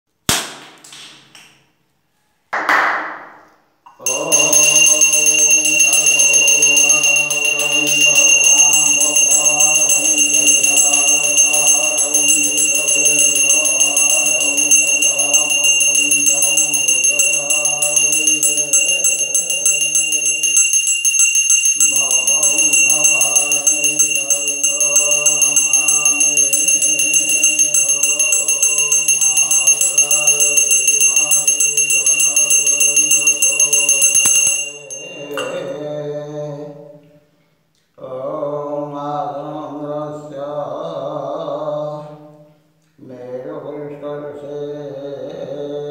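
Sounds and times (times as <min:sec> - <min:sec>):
hand bell ringing: 0:03.9 - 0:35.9
man chanting: 0:04.0 - 0:21.0, 0:21.8 - 0:37.0, 0:43.0 - 0:45.9.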